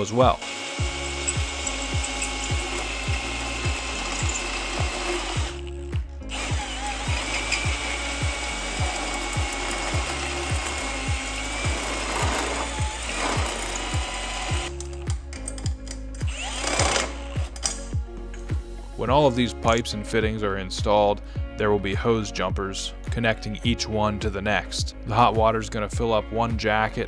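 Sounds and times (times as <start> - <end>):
drill cutting through steel pipe: 0.0 - 14.8, 16.2 - 17.6
background music with thumping beat: 0.0 - 27.0.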